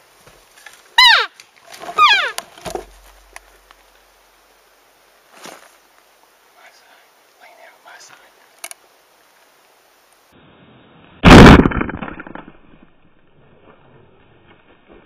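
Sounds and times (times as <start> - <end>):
gunshot echoing: 11.2 - 11.8.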